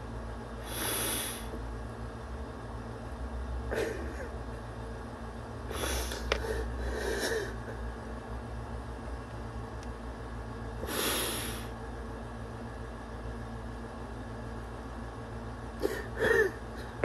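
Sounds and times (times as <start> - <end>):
steady low hum: 0.0 - 17.0
man sniffling while crying: 0.6 - 1.6, 5.7 - 7.6, 10.8 - 11.8, 15.8 - 16.6.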